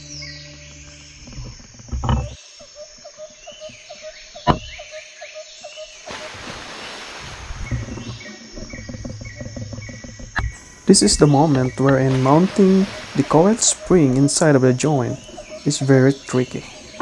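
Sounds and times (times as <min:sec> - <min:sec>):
faint chirping: 0:00.0 - 0:17.0
knock on workbench: 0:04.5 - 0:04.7.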